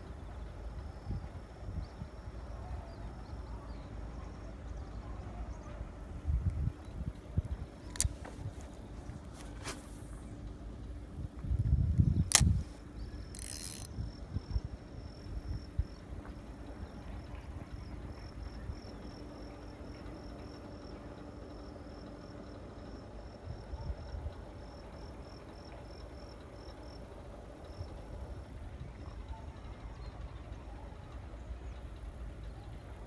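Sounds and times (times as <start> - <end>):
fishing rod handling noise: 7.8 - 10.0, 12.2 - 13.9
insect chirping trill: 12.0 - 16.0
fishing reel click: 12.2 - 13.9.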